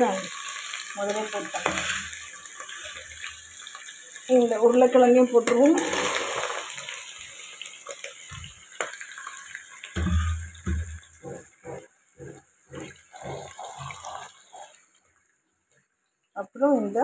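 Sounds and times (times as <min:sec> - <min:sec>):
oil sizzling: 0:00.0 - 0:17.0
spatula knocking pot: 0:10.0 - 0:14.0
spatula scraping pot: 0:10.0 - 0:14.8.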